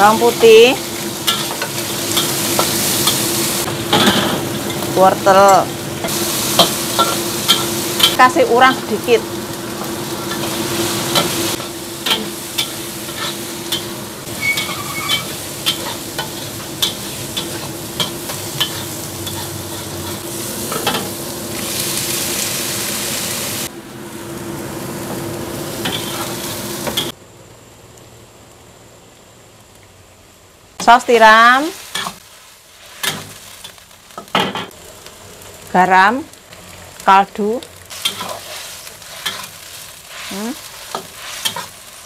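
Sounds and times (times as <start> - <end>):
food sizzling in a wok: 0.0 - 42.0
metal spatula scraping a pan: 11.2 - 21.0, 38.0 - 41.8.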